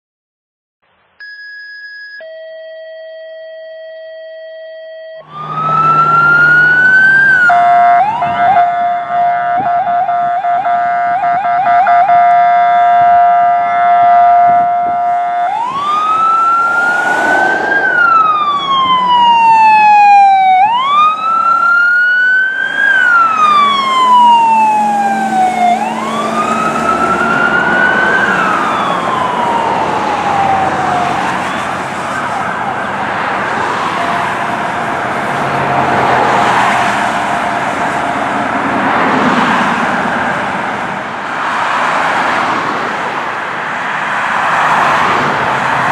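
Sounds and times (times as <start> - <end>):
fire truck siren wailing: 5.1 - 45.9
road traffic noise: 5.2 - 45.9.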